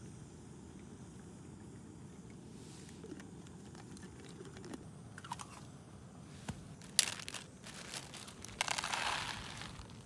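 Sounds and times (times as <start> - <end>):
crinkling handling noise: 6.3 - 10.0.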